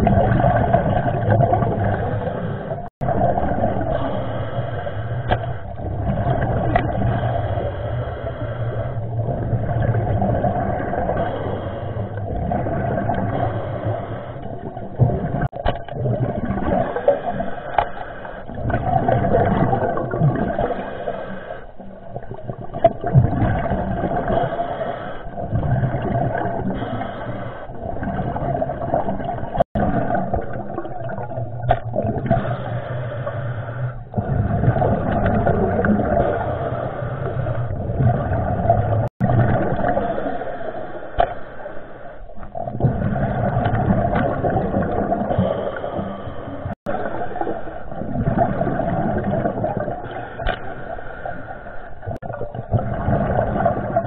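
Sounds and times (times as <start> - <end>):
underwater water rushing: 0.0 - 54.0.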